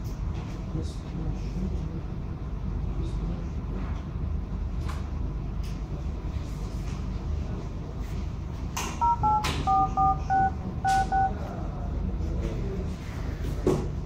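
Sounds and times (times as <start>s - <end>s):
low room hum: 0.0s - 14.0s
keypad touch tones: 9.0s - 11.5s.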